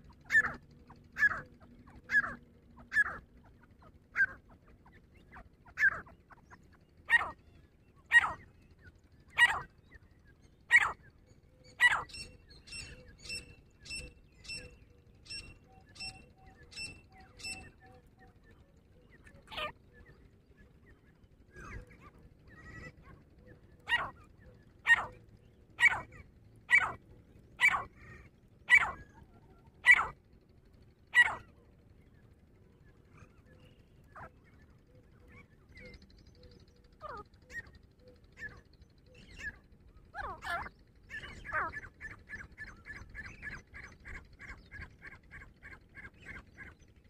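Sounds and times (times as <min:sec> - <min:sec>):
francolin harsh calls: 0:07.1 - 0:07.4, 0:08.1 - 0:08.5, 0:10.7 - 0:11.0, 0:11.7 - 0:17.8, 0:23.8 - 0:25.2, 0:25.8 - 0:27.0, 0:27.6 - 0:29.1, 0:29.8 - 0:30.2, 0:31.1 - 0:31.5, 0:38.4 - 0:46.7.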